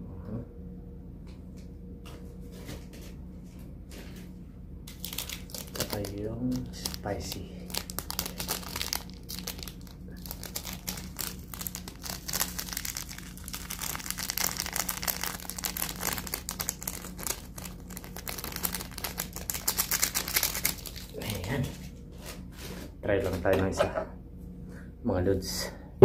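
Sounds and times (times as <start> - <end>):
plastic sachet crinkling: 4.9 - 21.5.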